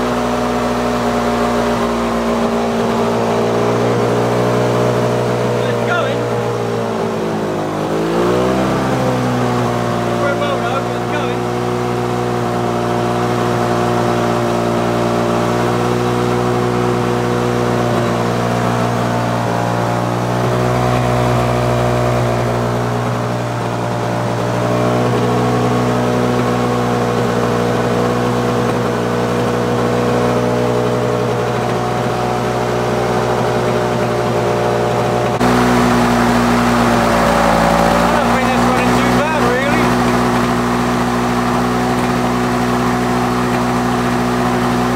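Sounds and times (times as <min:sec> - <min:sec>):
lawn mower engine running: 0:00.0 - 0:44.9.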